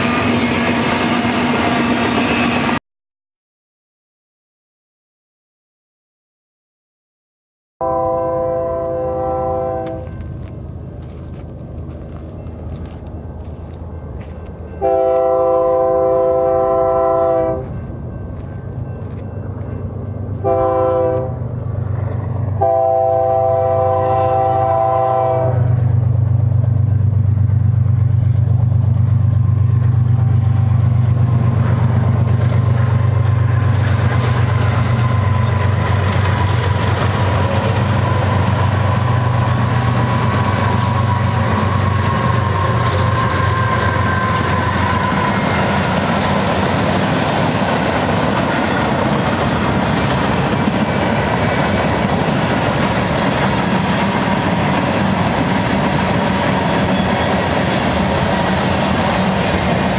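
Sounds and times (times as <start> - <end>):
train air horn blasts: 7.8 - 10.2, 14.8 - 17.8, 20.4 - 21.5, 22.5 - 25.9
wheels on rails: 9.9 - 14.9, 26.5 - 59.9.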